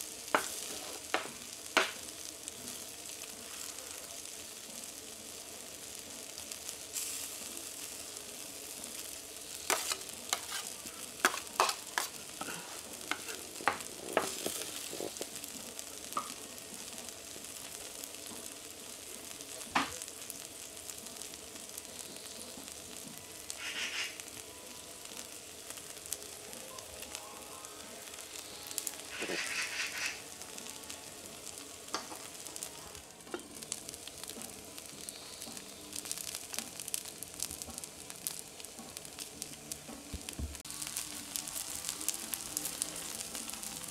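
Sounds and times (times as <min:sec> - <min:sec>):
rice sizzling on griddle: 0:00.0 - 0:43.9
spatulas scraping metal plate: 0:09.7 - 0:13.5, 0:29.2 - 0:30.2.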